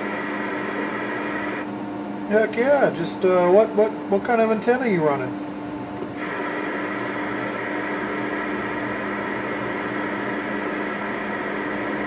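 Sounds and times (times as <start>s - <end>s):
radio static hiss: 0.0s - 1.7s, 6.2s - 12.0s
low steady hum: 0.0s - 12.0s.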